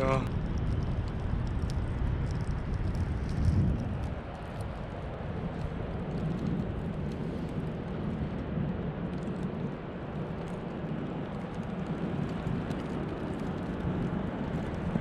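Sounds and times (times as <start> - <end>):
blizzard wind rushing: 0.0 - 15.0.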